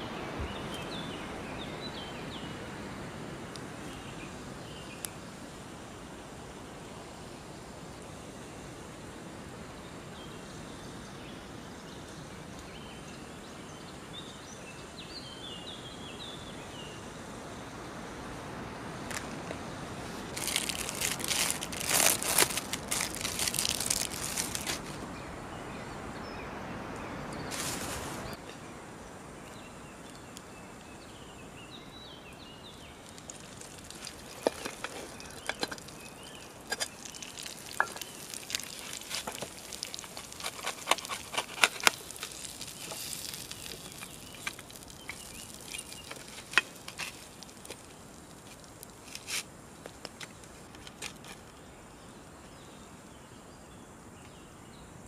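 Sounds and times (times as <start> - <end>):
plastic wrapping crinkling: 20.3 - 25.0, 27.5 - 28.4, 33.0 - 49.4
oil sizzling in frying pan: 33.1 - 41.1.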